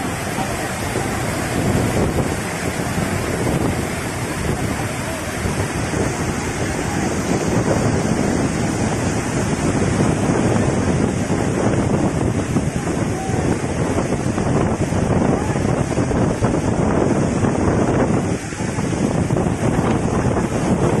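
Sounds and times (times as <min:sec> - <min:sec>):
floodwater rushing over a spillway: 0:00.0 - 0:21.0.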